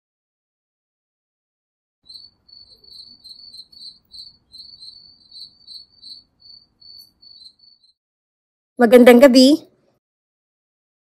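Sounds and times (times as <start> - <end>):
crickets chirping: 2.0 - 8.0.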